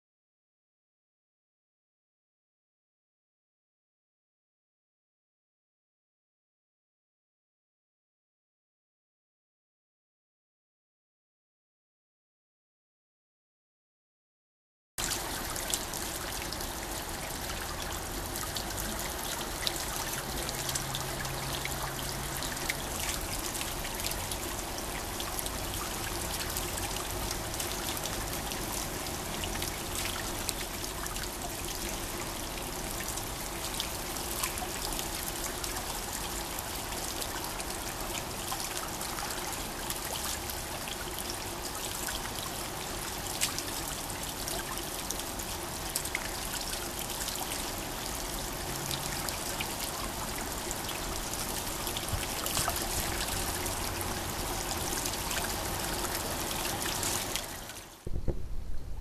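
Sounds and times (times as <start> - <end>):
water splashing into pond: 48.4 - 58.7.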